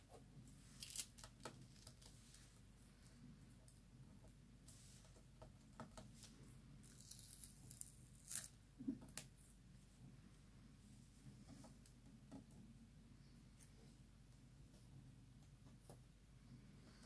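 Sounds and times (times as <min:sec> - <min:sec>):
tape peeled off card crackling: 0:00.8 - 0:02.1.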